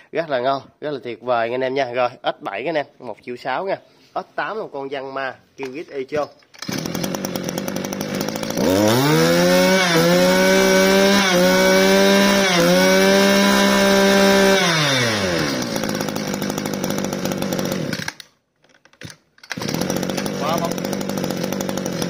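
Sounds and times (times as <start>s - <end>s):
brush cutter engine revving: 6.6s - 18.3s, 19.4s - 22.0s.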